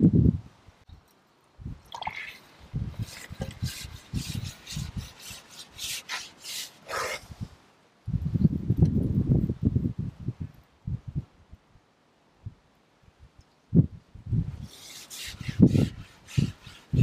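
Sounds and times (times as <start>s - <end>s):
fishing pole rubbing and scraping: 2.1s - 7.4s, 14.6s - 17.0s.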